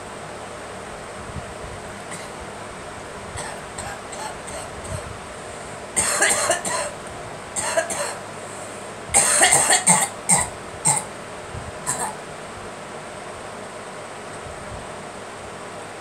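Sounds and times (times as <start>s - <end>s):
woman coughing: 2.1s - 2.4s, 3.4s - 5.1s, 6.0s - 7.0s, 7.6s - 8.2s, 9.2s - 11.1s, 11.9s - 12.2s.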